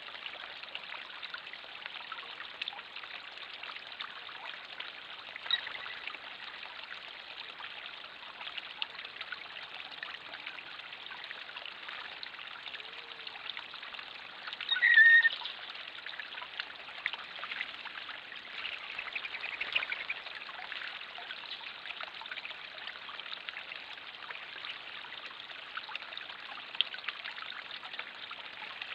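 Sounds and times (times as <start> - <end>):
short high-pitched call: 14.7 - 15.4.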